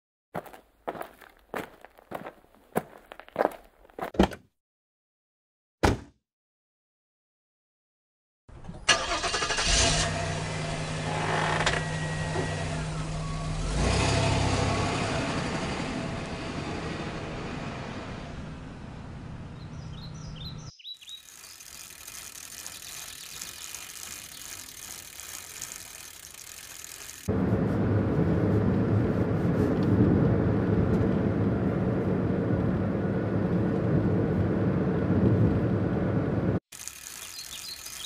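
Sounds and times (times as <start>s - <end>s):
outdoor street ambience: 0.4s - 4.2s, 8.5s - 38.0s
vehicle engine starting and running: 8.5s - 38.0s.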